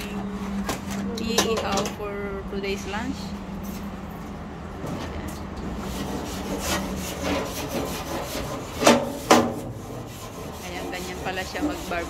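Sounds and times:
metal scraping grill grate: 0:04.8 - 0:12.0.

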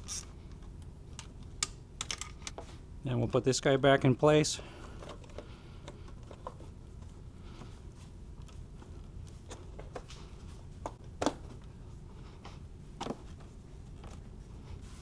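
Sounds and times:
low steady hum: 0:00.0 - 0:15.0
rubber and plastic handling noises: 0:04.8 - 0:15.0.

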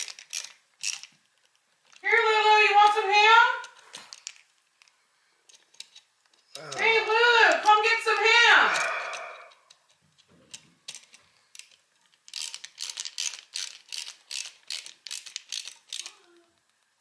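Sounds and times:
screwdriver metallic clicks and rattles: 0:00.0 - 0:02.0, 0:05.5 - 0:06.5, 0:09.7 - 0:16.2.

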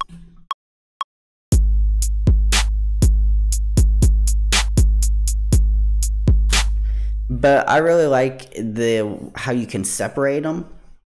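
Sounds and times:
trap beat with deep bass: 0:01.6 - 0:07.3.

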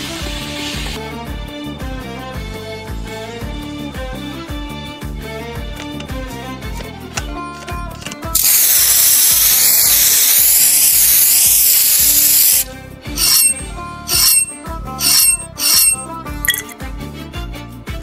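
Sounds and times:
paint spray gun hissing: 0:08.4 - 0:16.0.

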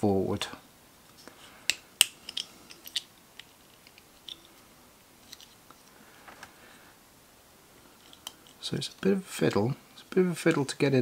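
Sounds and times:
small plastic parts clicking: 0:01.7 - 0:04.6.

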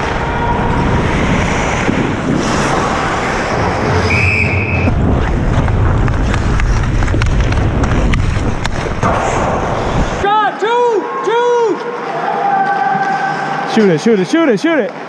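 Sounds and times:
short high whistle blast: 0:04.0 - 0:04.9
rumble and rustle of gear: 0:04.8 - 0:10.2.

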